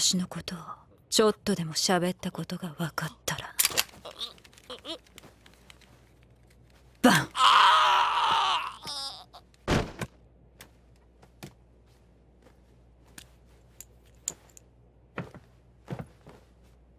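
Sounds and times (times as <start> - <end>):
small clicks and rustles: 3.6 - 7.0
man's strangled cry: 7.0 - 9.4.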